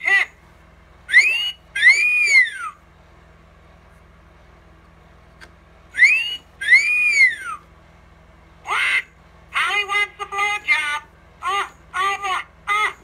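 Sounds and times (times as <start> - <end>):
toy parrot wolf whistle: 1.1 - 2.8, 6.0 - 7.6.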